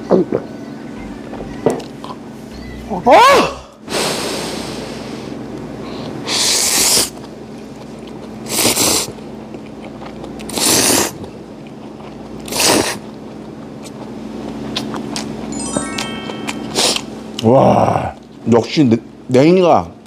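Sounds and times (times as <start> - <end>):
person slurping noodles: 8.4 - 9.1, 10.5 - 11.2, 12.4 - 13.0.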